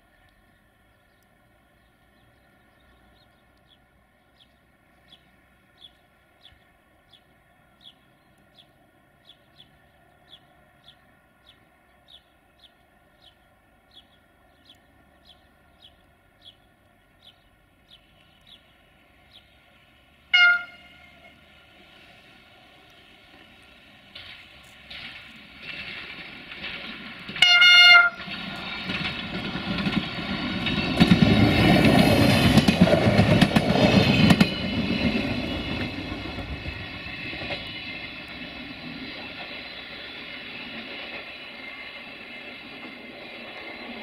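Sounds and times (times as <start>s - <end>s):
train whine: 17.5s - 44.0s
train horn blast: 20.3s - 21.5s, 27.4s - 28.3s.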